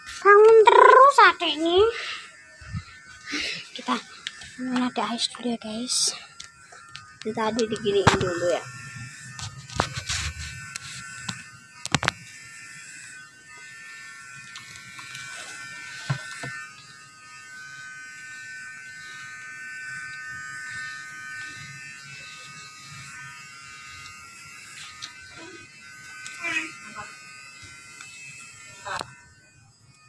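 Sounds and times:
electric hair clippers buzzing: 0:00.0 - 0:30.0.

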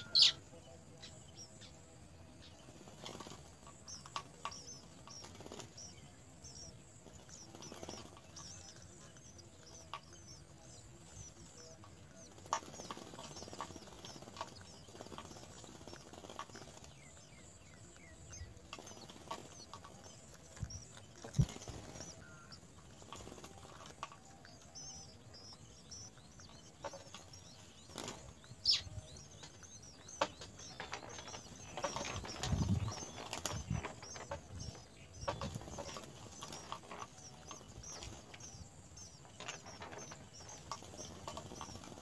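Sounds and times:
nestlings cheeping: 0:01.0 - 0:42.0
wing flutters: 0:18.6 - 0:24.2.

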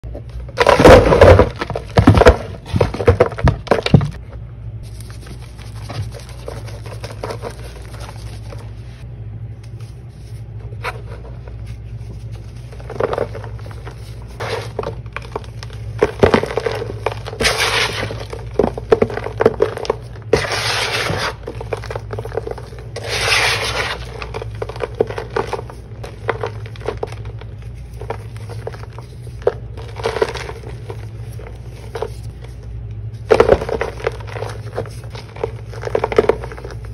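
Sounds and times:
steady low hum: 0:00.0 - 0:36.9
gritty crunching and crumbling: 0:00.5 - 0:04.2, 0:11.9 - 0:36.9
powder slab snapping: 0:12.8 - 0:32.4.

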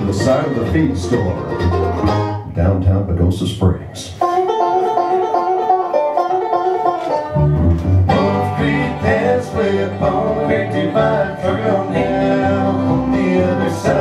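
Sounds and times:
picked melody line: 0:00.0 - 0:02.7, 0:04.2 - 0:14.0
bluegrass band playing: 0:00.0 - 0:14.0
upright bass: 0:00.0 - 0:14.0.

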